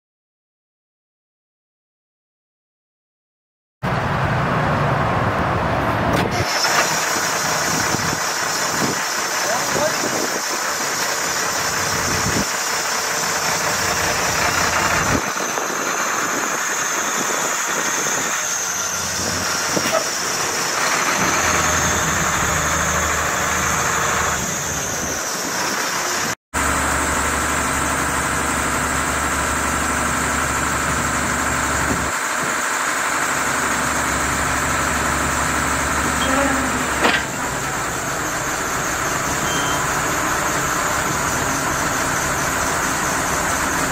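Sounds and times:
truck engine running: 3.8s - 43.9s
hydraulic hoist raising: 6.1s - 27.0s, 30.0s - 43.9s
high whine: 33.4s - 43.9s
metal clank: 36.2s - 37.7s.

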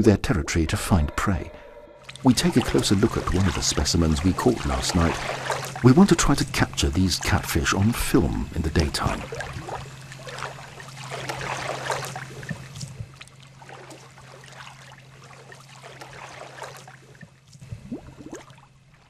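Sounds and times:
low steady hum: 0.0s - 19.0s
river water splashing and trickling: 2.0s - 19.0s.

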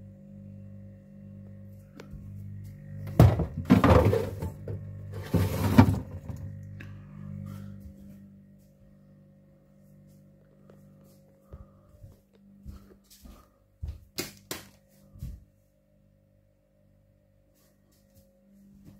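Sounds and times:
fridge compressor humming: 0.0s - 14.0s.

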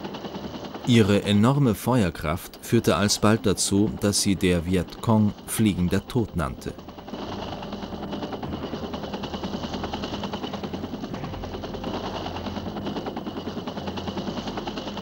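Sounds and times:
helicopter rotor and engine: 0.0s - 15.0s
rapid gunfire: 6.8s - 15.0s.

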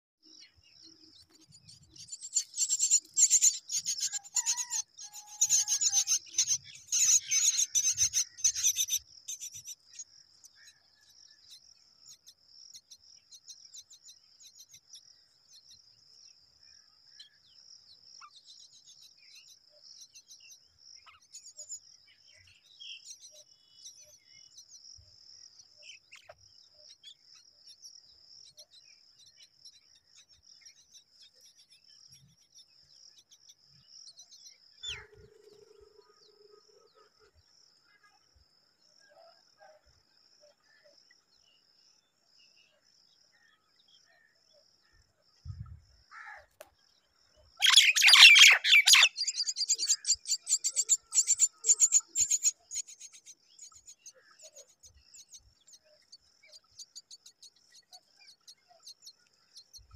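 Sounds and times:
bird calling rapidly: 47.6s - 50.0s.

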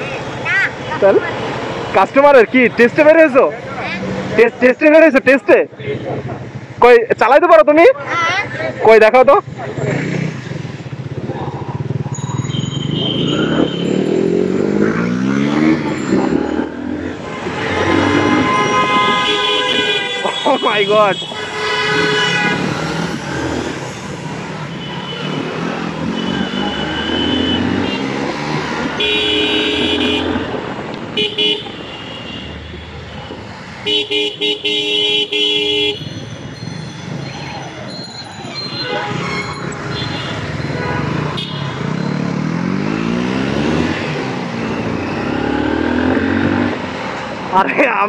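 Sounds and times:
road noise: 0.0s - 48.0s
motorcycle engine: 9.4s - 47.8s
engine revving: 9.7s - 12.1s, 12.7s - 19.2s, 21.8s - 30.7s, 39.0s - 46.9s
vehicle horns: 12.4s - 16.4s, 17.0s - 23.7s, 24.6s - 46.5s.

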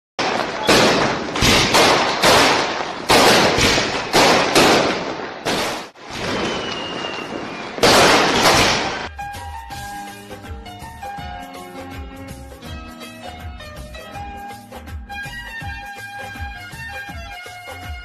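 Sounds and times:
fireworks bangs: 0.2s - 9.1s
faint falling whistle: 6.2s - 7.8s.

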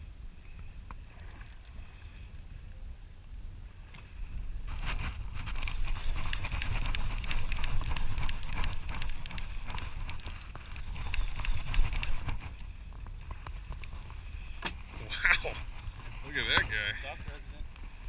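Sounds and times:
low rumble of wind and boat: 0.0s - 18.0s
fishing reel clicking: 1.2s - 2.5s.

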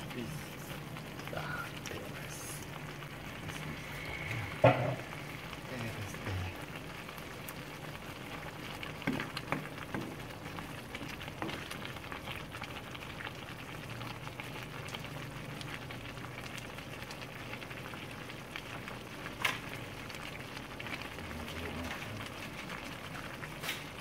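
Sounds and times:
soup simmering and bubbling: 0.0s - 24.0s
wooden spatula stirring: 8.5s - 12.4s.

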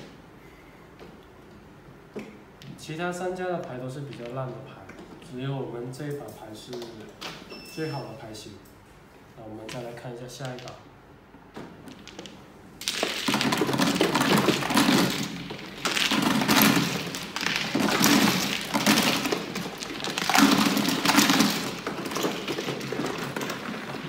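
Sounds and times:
mahjong tiles clattering: 9.7s - 10.8s, 11.9s - 24.0s.

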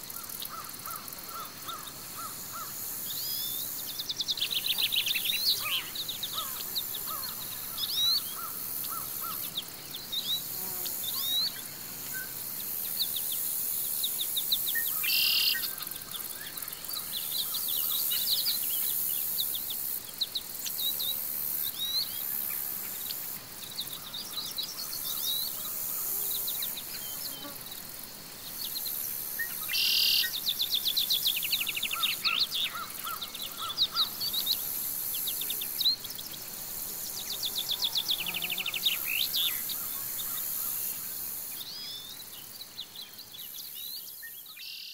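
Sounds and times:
high insect hiss: 0.0s - 44.9s
birds chirping and trilling: 3.3s - 10.5s, 29.4s - 36.4s.

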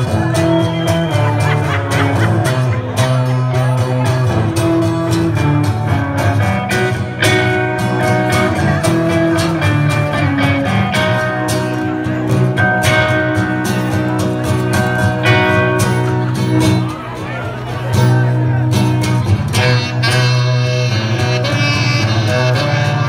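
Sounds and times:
acoustic guitar strumming: 0.0s - 23.0s
band instruments: 0.0s - 23.0s
saxophone notes: 19.5s - 23.0s.

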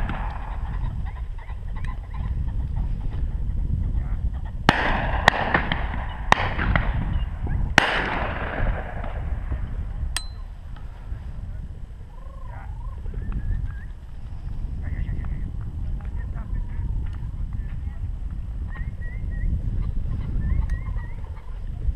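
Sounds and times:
shotgun shots with echo: 0.0s - 0.6s, 4.7s - 7.2s, 7.8s - 9.5s
wind rumble on microphone: 0.0s - 21.9s.

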